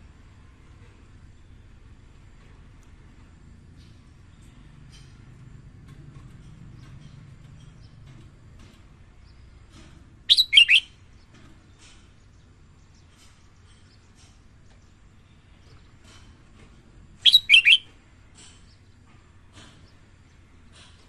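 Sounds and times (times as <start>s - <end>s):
bird singing sliding notes: 10.3s - 10.9s, 17.2s - 17.9s
faint bird chirps: 10.3s - 11.3s, 17.2s - 17.9s.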